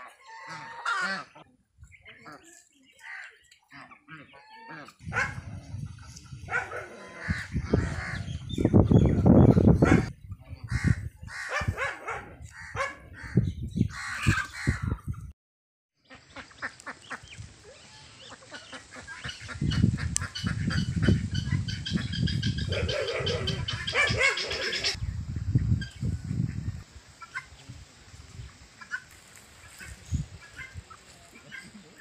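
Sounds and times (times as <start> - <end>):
poultry calling: 0.0 - 1.5, 2.1 - 5.4, 6.0 - 15.0, 16.0 - 25.0
choppy low rumbling: 5.0 - 12.4.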